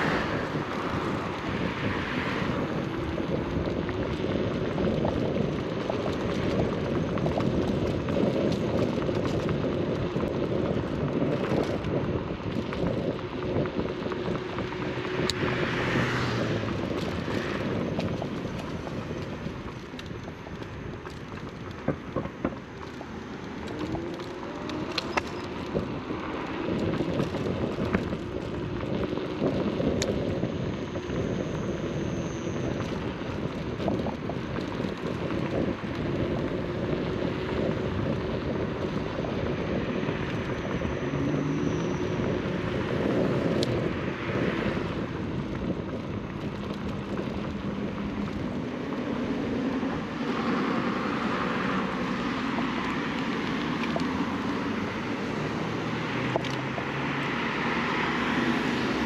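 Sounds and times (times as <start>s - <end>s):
tyre rumble on road: 0.0s - 59.0s
wind rushing over microphone: 0.0s - 59.0s
clicks and knocks from bumps: 16.8s - 25.9s.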